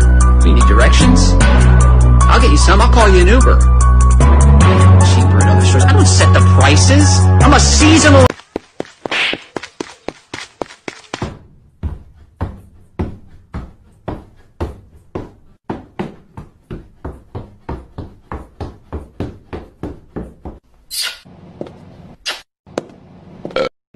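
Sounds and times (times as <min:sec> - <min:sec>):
high heels clacking on floor: 0:08.3 - 0:20.6.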